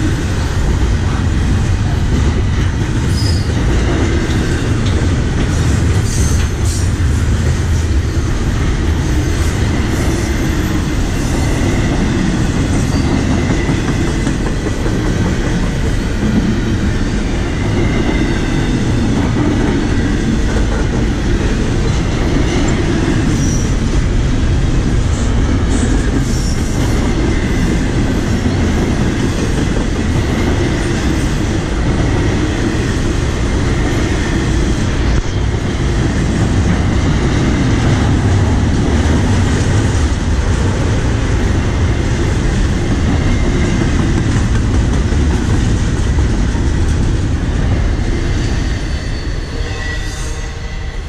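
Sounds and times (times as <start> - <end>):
freight train rumbling past: 0.0 - 51.0.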